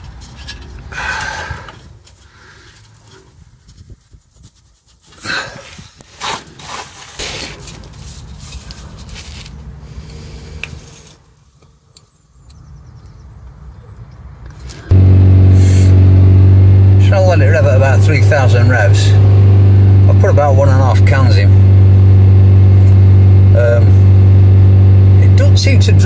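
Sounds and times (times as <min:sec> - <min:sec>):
diesel engine revving: 0:14.9 - 0:26.0.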